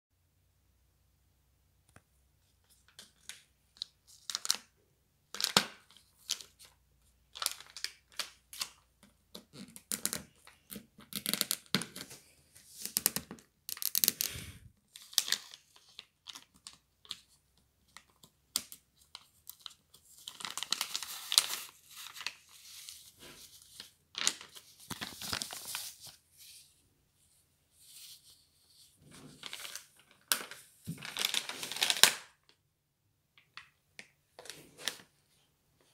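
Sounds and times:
plastic wrapper crinkling: 7.3 - 8.8, 17.9 - 26.2, 29.2 - 32.5
plastic pack tearing: 29.3 - 32.4.

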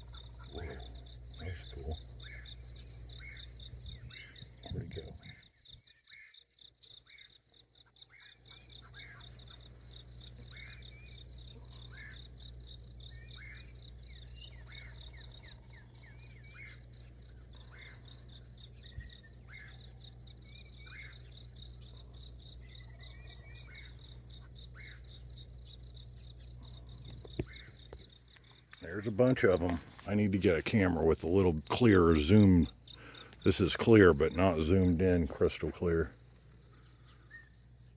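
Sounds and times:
low steady hum: 0.0 - 5.8, 8.4 - 37.9
short bird calls: 0.0 - 7.4, 10.3 - 12.3, 13.1 - 27.9, 36.6 - 37.7
high insect trill: 0.0 - 37.9.

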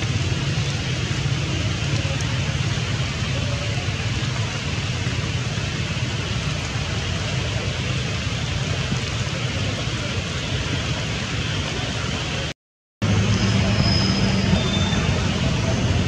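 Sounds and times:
heavy rain on stream: 0.0 - 16.0.

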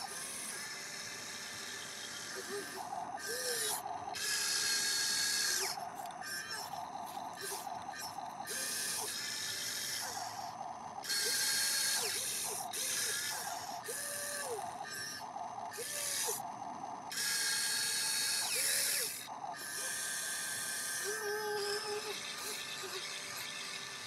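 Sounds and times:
toy excavator motors whirring: 0.0 - 24.0.

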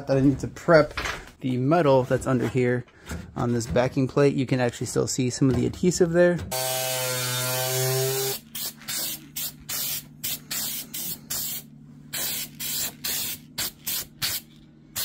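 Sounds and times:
aerosol can hissing in bursts: 6.6 - 15.0.

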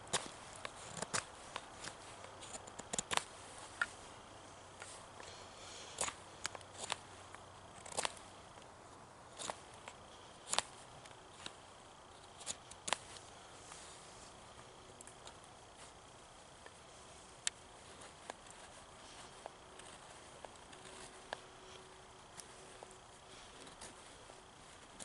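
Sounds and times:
knife shaving wood: 7.7 - 8.6, 9.3 - 25.0.

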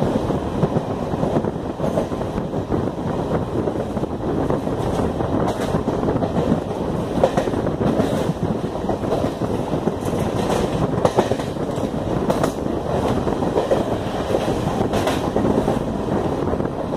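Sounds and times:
train wheels rumbling on rails: 0.0 - 16.9
clacks over rail joints: 4.6 - 15.9.

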